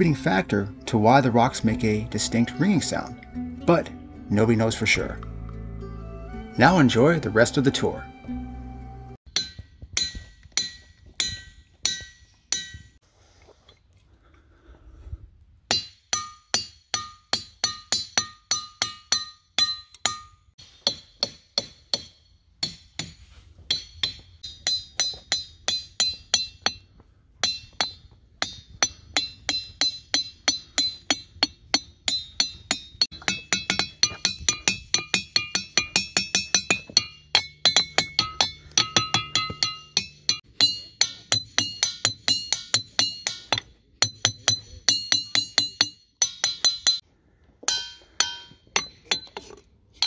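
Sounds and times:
hammer striking ringing rock: 9.3 - 13.0, 15.7 - 26.8, 27.4 - 47.0, 47.7 - 49.4.

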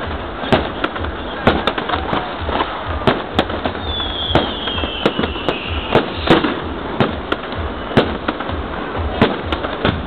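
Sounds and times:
fireworks bangs: 0.0 - 10.0
steady background noise: 0.0 - 10.0
high descending whistle: 3.8 - 6.2.

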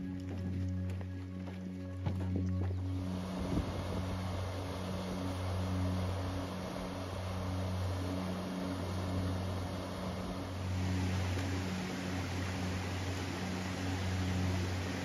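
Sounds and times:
low steady hum: 0.0 - 15.0
waterfall pouring over rocks: 2.9 - 15.0.

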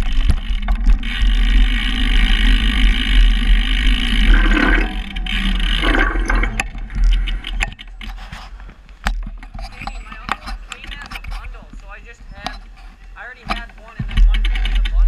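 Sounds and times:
bicycle rolling on wooden ramp: 0.0 - 10.2, 13.3 - 15.0
bicycle clicks and knocks: 0.0 - 15.0.

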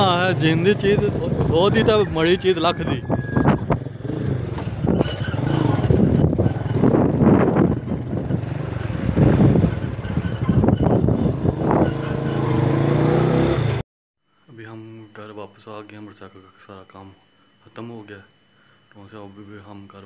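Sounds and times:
motorcycle engine running: 0.0 - 2.6, 3.4 - 13.8.

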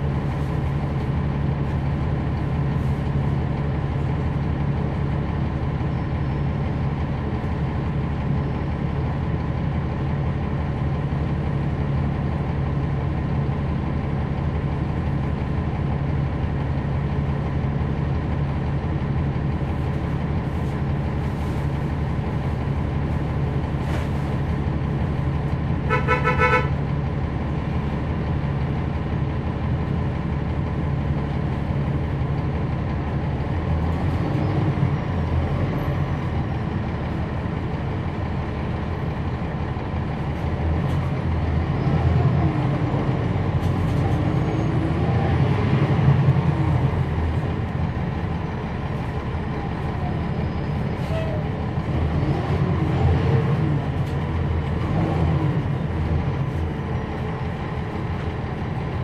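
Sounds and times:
bus diesel engine hum: 0.0 - 59.0
vehicle horn toot: 25.9 - 26.8.

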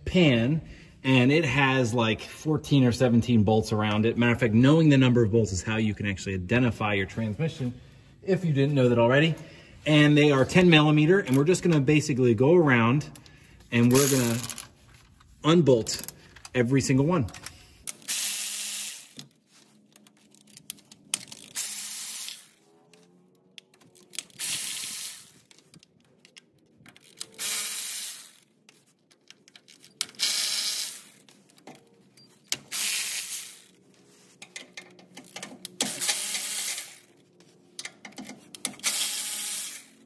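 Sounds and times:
hand ratchet clicking: 34.5 - 37.0.

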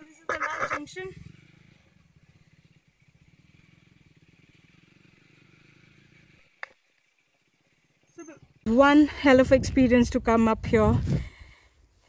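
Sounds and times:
motorcycle engine at low revs: 0.0 - 11.3.

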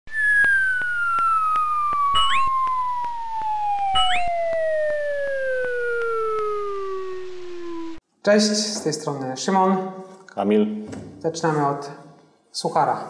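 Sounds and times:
quick upward chirps: 0.1 - 8.0
whistle tone sliding down: 0.1 - 8.0.

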